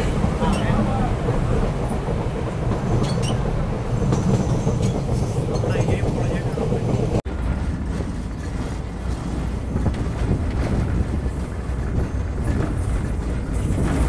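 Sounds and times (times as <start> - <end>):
train carriages rumbling on track: 0.0 - 14.0.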